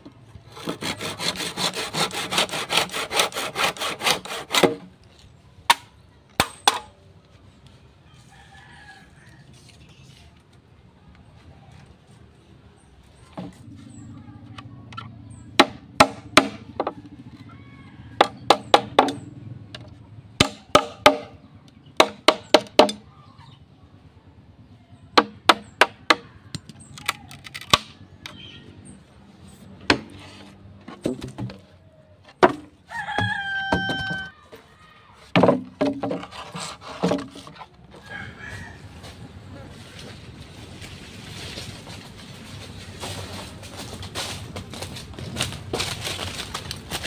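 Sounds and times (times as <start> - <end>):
machete chopping bamboo: 0.5 - 4.9, 5.6 - 7.0, 15.6 - 17.0, 18.2 - 19.3, 20.4 - 23.1, 25.2 - 28.4, 29.8 - 30.2, 32.4 - 34.3
rooster crowing: 8.1 - 9.7, 17.3 - 18.5, 32.9 - 34.4, 37.9 - 39.3.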